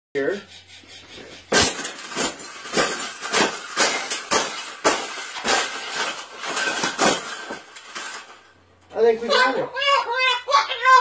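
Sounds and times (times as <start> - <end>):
metal wires rattling: 1.4 - 9.1.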